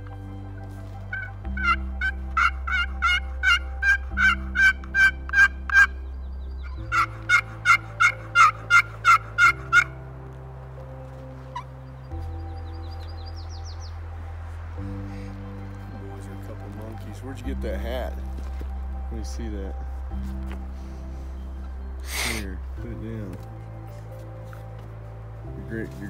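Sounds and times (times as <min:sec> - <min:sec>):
background music low tone: 0:00.0 - 0:26.0
turkey yelping: 0:01.1 - 0:06.0, 0:06.9 - 0:10.0.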